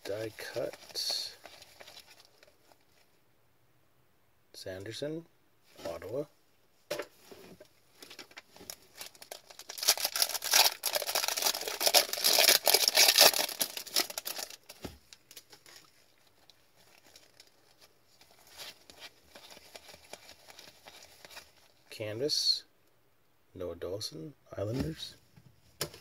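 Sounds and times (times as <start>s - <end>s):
wrapper tearing and crinkling: 0.1s - 2.8s, 8.0s - 21.8s
cards rustling: 8.0s - 21.8s.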